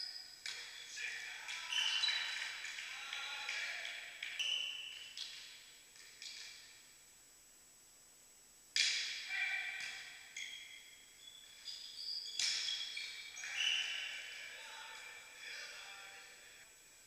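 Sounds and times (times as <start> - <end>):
sneakers squeaking on floor: 1.6 - 2.7, 4.2 - 5.5, 8.8 - 15.2.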